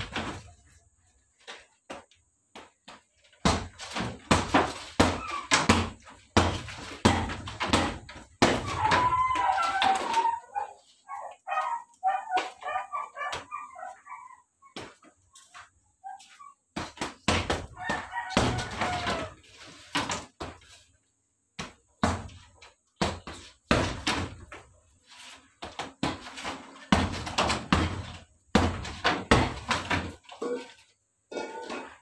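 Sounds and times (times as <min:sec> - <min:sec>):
punches thudding on heavy bag: 0:03.4 - 0:09.0, 0:26.9 - 0:30.2.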